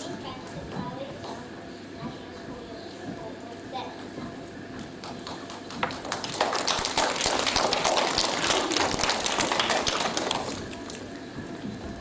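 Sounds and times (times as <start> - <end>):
audience applauding: 5.0 - 11.1.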